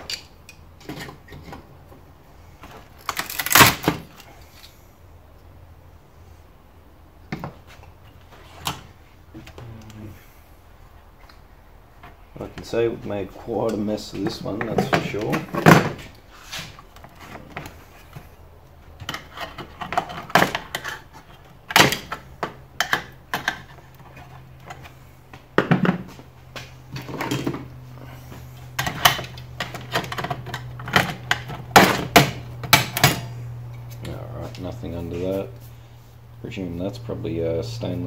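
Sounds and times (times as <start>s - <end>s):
low steady hum: 0.0s - 38.0s
screwdriver and pliers breaking parts: 3.0s - 4.0s.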